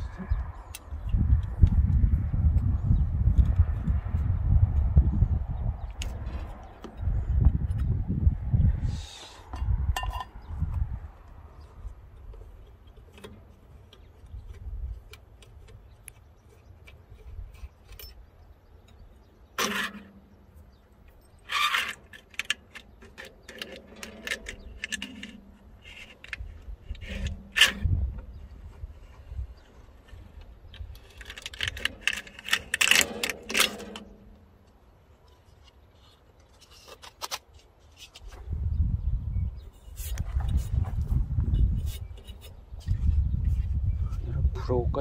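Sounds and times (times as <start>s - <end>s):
metal air filter rattling and scraping: 19.0s - 38.4s, 39.7s - 43.6s.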